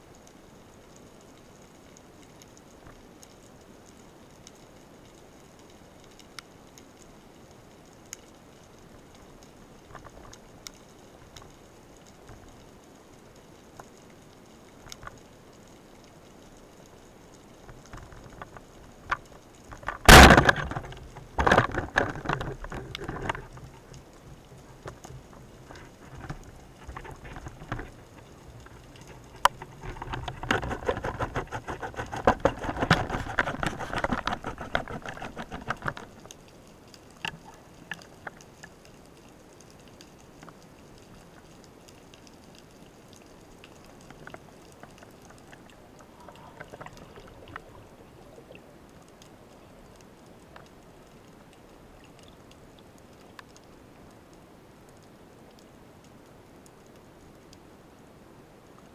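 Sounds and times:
steady underwater hiss: 0.0s - 58.9s
underwater water rushing: 40.6s - 53.0s.

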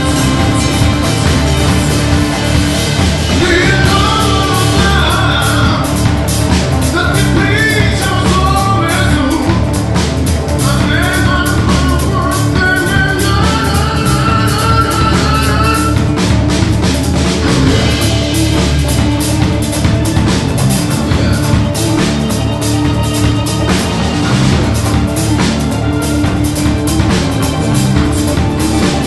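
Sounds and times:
drum kit: 0.0s - 29.0s
electric guitars: 0.0s - 29.0s
man singing: 3.2s - 16.7s.

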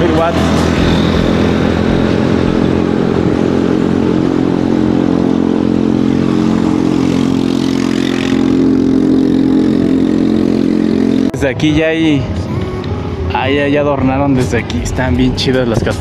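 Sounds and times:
electric bicycle motor hum: 0.0s - 11.3s.

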